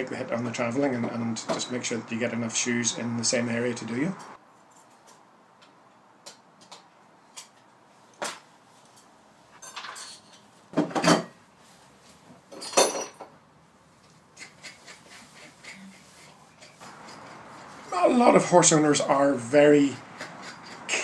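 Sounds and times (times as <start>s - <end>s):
scraping on hoof: 14.4s - 17.9s.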